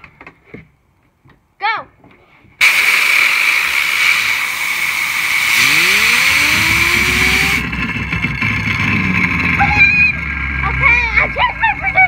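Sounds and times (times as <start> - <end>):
air blow gun hissing: 2.6 - 7.7
fidget spinner whirring: 3.4 - 7.9.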